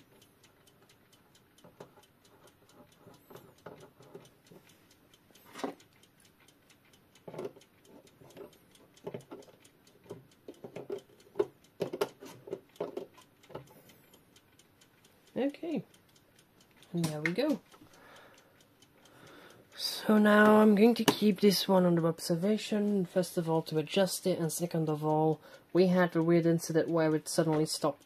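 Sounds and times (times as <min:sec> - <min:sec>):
clock ticking rapidly: 0:00.0 - 0:28.0
metallic clicks and knocks of tools: 0:01.6 - 0:04.7, 0:07.2 - 0:13.9.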